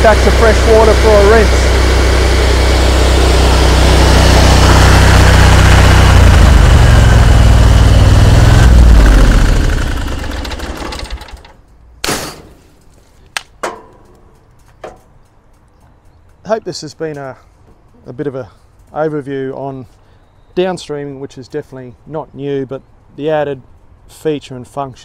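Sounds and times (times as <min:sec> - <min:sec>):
pressure washer engine running: 0:00.0 - 0:11.4.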